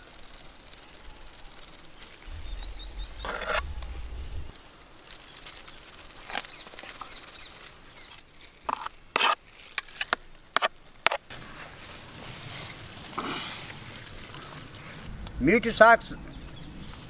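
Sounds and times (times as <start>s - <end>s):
spoon scraping baking pans: 3.2s - 3.6s, 8.1s - 11.2s.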